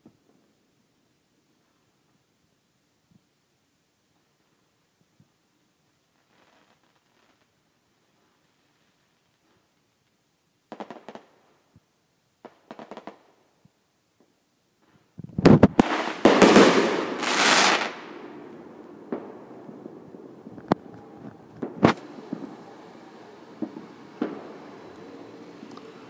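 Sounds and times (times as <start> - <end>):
fireworks crackling pops: 5.1 - 26.0
firework bang: 15.4 - 18.5, 19.1 - 25.2
firework hiss: 15.4 - 19.7, 20.4 - 26.0.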